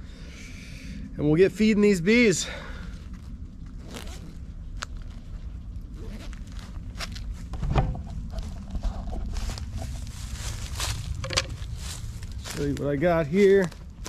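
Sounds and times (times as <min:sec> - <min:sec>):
footsteps on dry leaves: 0:02.8 - 0:14.0
zipper rasp: 0:03.8 - 0:04.3, 0:05.9 - 0:06.4.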